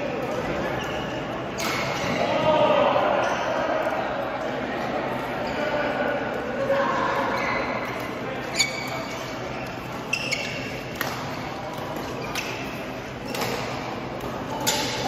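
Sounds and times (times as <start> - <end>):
murmur of voices echoing: 0.0 - 15.0
shoe squeaks: 8.4 - 10.9, 12.0 - 13.5
rackets striking shuttlecock: 10.4 - 15.0.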